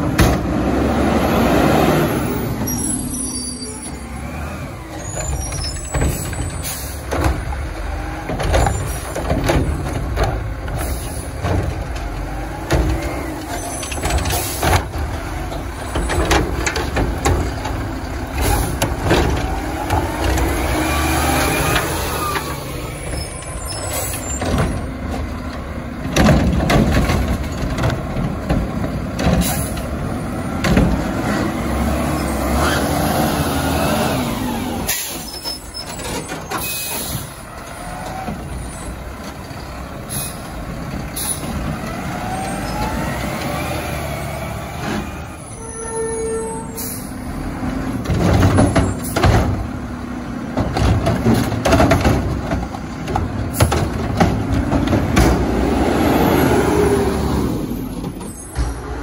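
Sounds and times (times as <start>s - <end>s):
diesel engines revving: 0.0s - 59.0s
air brakes hissing: 5.0s - 7.1s, 10.8s - 11.4s, 34.9s - 37.5s, 40.0s - 40.6s, 41.2s - 41.6s, 46.0s - 47.2s
carts knocking: 48.0s - 55.7s.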